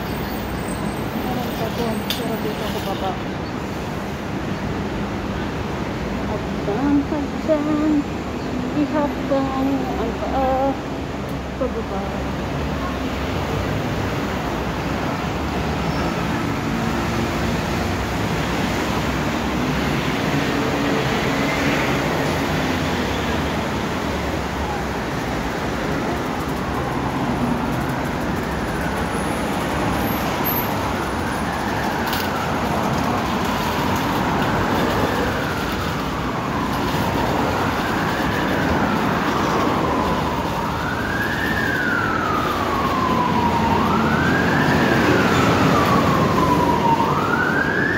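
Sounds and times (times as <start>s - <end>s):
road traffic noise: 0.0s - 47.9s
emergency siren wailing: 16.4s - 47.9s.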